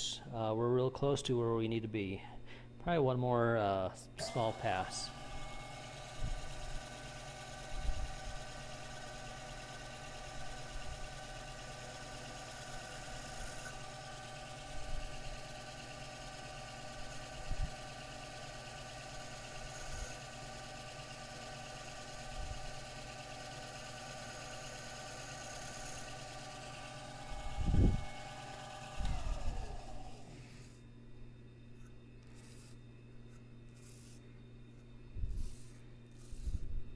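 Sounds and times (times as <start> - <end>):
lathe spinning down: 4.2 - 30.8
lathe motor whine: 4.2 - 31.0.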